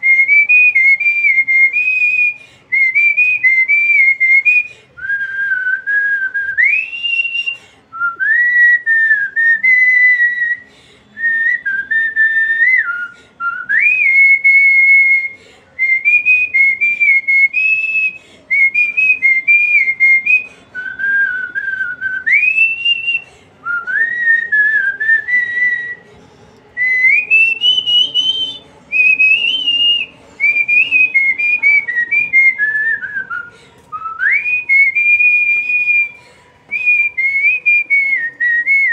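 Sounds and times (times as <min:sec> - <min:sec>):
woman whistling a melody: 0:00.0 - 0:26.0, 0:26.8 - 0:38.9.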